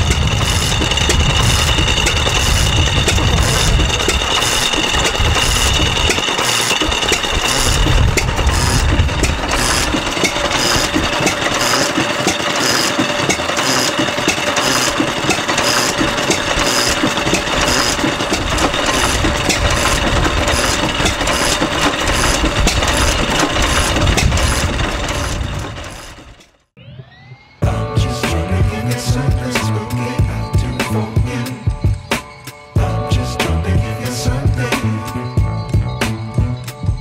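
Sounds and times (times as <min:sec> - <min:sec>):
mechanical clatter: 0:00.0 - 0:26.7
stationary engine running: 0:00.0 - 0:27.2.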